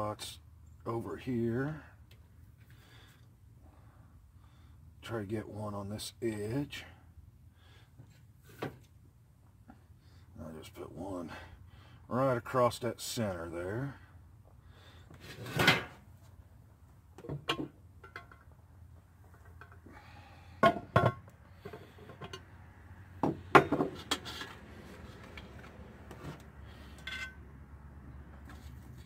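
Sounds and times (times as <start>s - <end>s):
metallic knocks and clunks: 23.2s - 24.5s.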